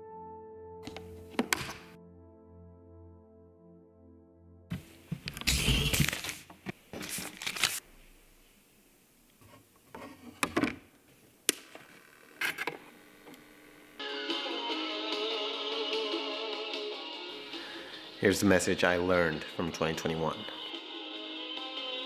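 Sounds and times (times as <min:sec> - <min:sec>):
vinyl record rustling and scraping: 0:04.7 - 0:08.6, 0:09.4 - 0:10.5.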